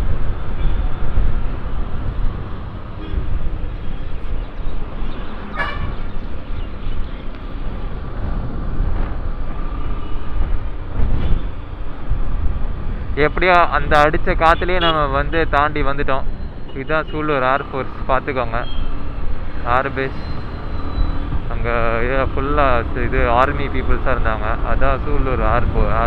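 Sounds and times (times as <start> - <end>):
wind rumbling on microphone: 0.0 - 15.8, 23.0 - 26.0
road noise: 0.0 - 26.0
vehicle horn toot: 5.6 - 6.0, 14.7 - 15.0.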